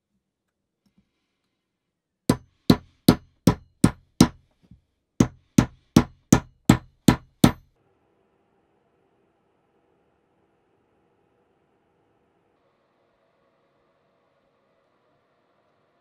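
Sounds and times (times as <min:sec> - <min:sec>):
hammer striking wooden wedge: 0:02.3 - 0:04.4, 0:05.2 - 0:07.6.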